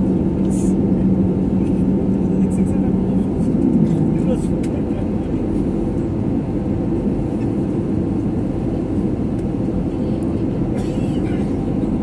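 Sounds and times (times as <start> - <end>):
aircraft cabin engine rumble: 0.0 - 12.0.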